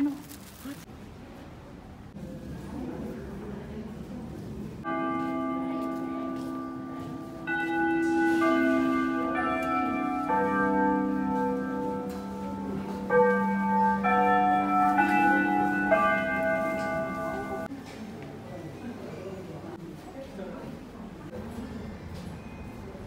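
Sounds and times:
slow bell-like music: 4.9 - 17.7.

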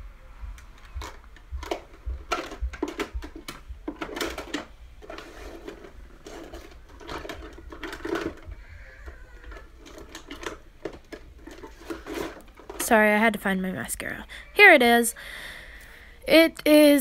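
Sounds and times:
small items clicking and clattering: 0.8 - 13.1.

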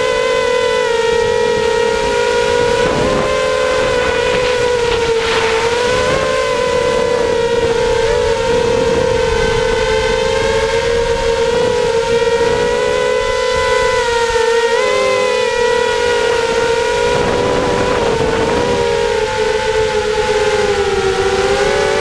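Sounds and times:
drone motors whining: 0.0 - 22.0
rush of air: 3.8 - 6.7.

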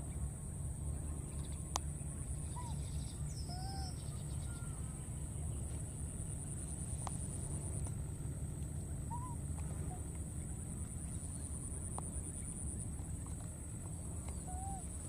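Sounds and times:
constant high-pitched hum: 0.0 - 15.0
steady low rumble: 0.0 - 15.0.

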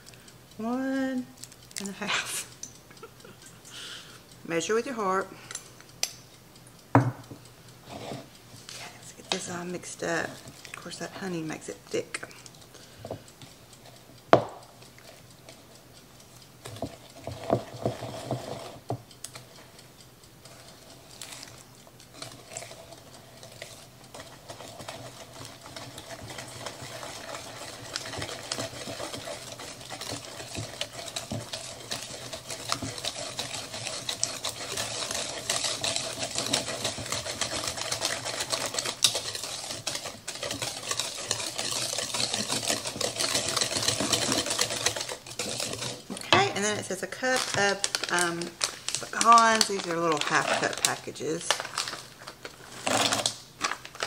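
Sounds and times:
whisk beating in plastic bowl: 9.2 - 12.3, 16.6 - 19.5, 20.4 - 53.8.

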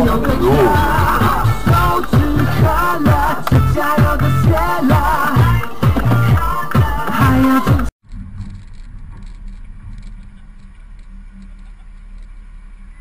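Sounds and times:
car engines in traffic: 0.0 - 2.6.

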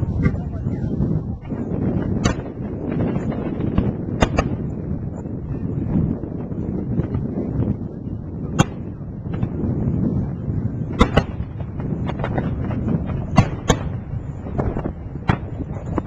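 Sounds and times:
low background rumble: 0.0 - 16.0
distant firework bangs: 1.4 - 5.0, 8.4 - 9.6, 10.8 - 16.0.

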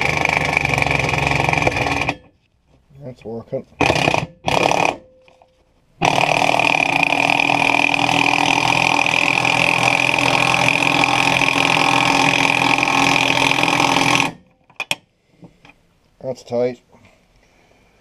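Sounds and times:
loud steady machine noise: 0.0 - 2.3, 6.0 - 14.4.

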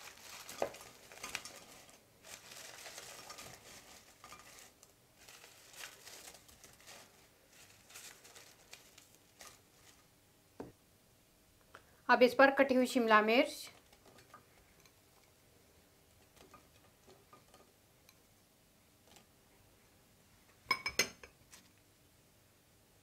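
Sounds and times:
paper towel rustling: 0.0 - 10.1.

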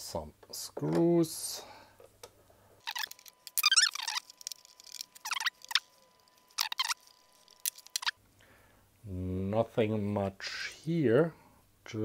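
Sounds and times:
plastic squeaking and creaking: 2.8 - 8.2.

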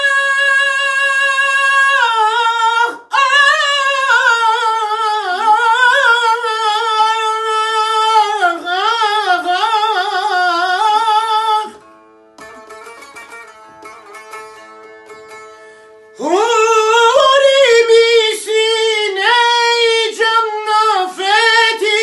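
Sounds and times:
man singing ornamented vocals: 0.0 - 11.8, 16.2 - 22.0
lute plucking: 0.0 - 22.0
singer breathing: 15.5 - 16.2.

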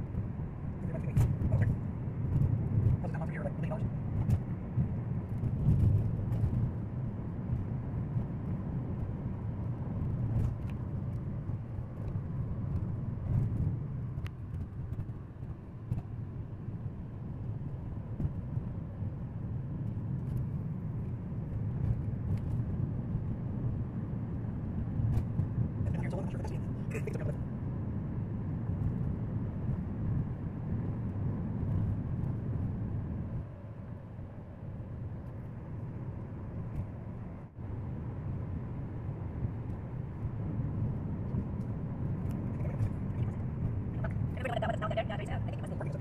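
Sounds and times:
car cabin road rumble: 0.0 - 46.0.

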